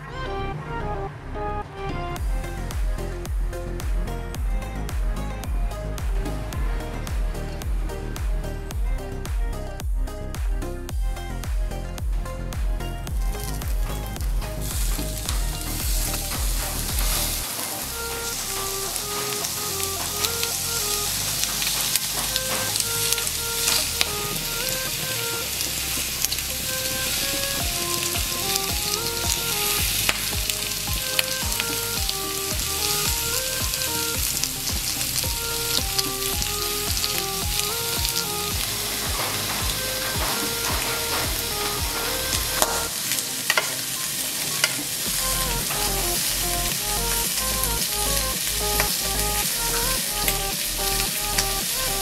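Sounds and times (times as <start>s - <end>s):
soft background music: 0.0s - 52.0s
crackles and pops: 12.6s - 52.0s
pork sizzling in a pan: 14.6s - 52.0s.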